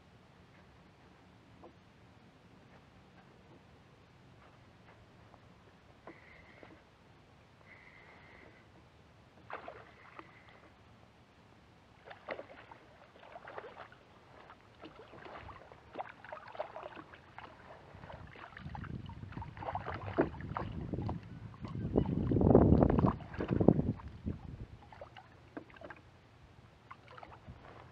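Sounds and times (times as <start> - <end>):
fish splashing at water surface: 9.5 - 10.6.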